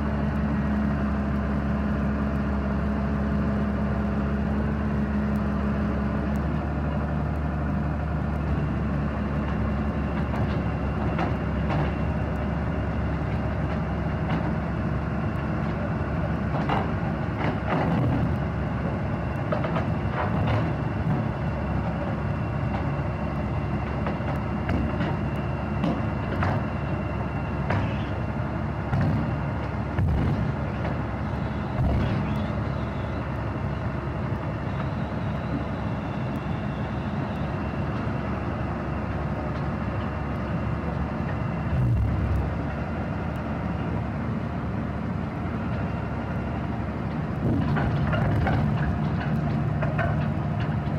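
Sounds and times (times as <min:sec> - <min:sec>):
diesel engine running: 0:00.0 - 0:50.9
track plates clanking: 0:15.4 - 0:36.5, 0:46.7 - 0:50.9.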